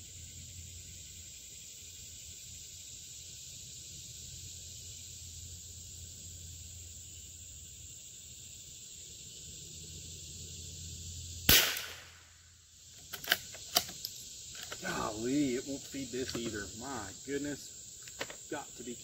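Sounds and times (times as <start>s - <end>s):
high insect buzz: 0.0s - 19.0s
rifle shot: 11.5s - 12.4s
rifle bolt clicks: 13.0s - 14.8s.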